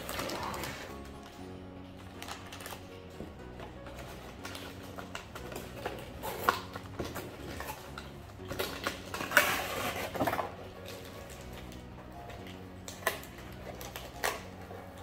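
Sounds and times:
cardboard scraping and rustling: 3.9 - 11.6.

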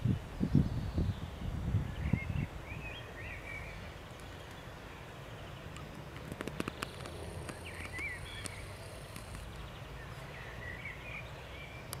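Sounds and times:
sharp clicks: 5.8 - 9.5.

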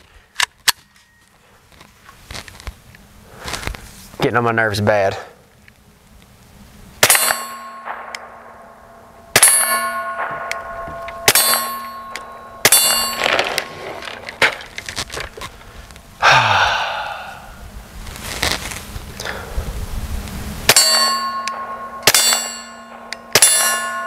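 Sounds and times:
ringing metallic clang: 7.0 - 14.7, 20.7 - 24.0.

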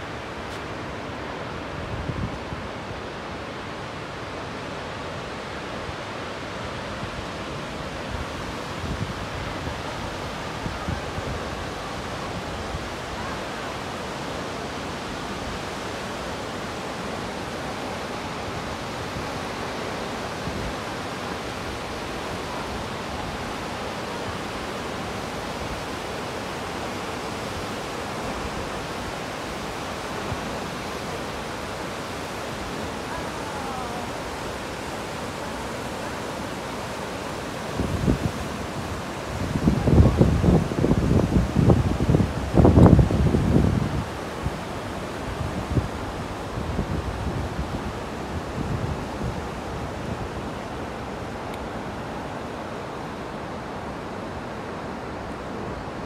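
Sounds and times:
waterfall rushing: 0.0 - 56.0
wind buffeting microphone: 37.7 - 50.8.

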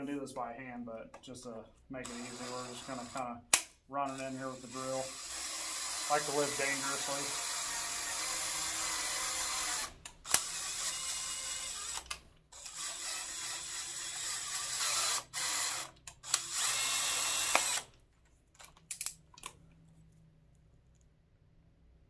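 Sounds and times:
cordless drill driving tap: 5.2 - 17.9.

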